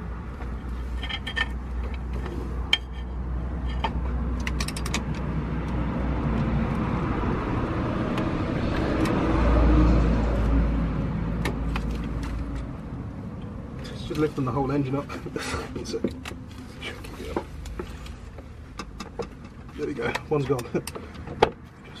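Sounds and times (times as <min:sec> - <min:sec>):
rough mechanical noise: 0:00.0 - 0:09.3.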